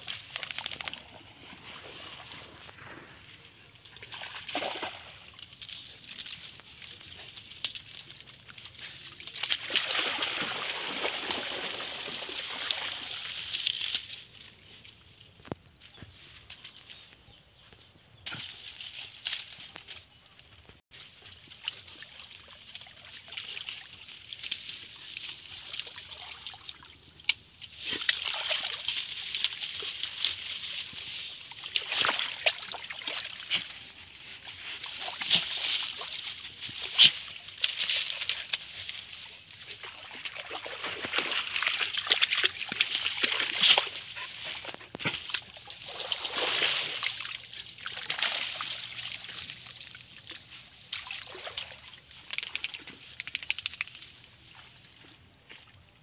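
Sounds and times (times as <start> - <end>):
dog splashing through water: 4.0 - 5.4, 9.2 - 13.5, 28.0 - 29.8, 39.7 - 49.8.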